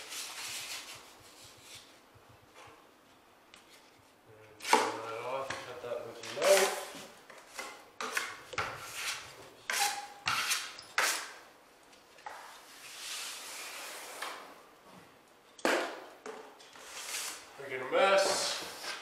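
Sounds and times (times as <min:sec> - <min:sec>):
drywall knife scraping: 0:06.2 - 0:11.4, 0:16.7 - 0:17.5.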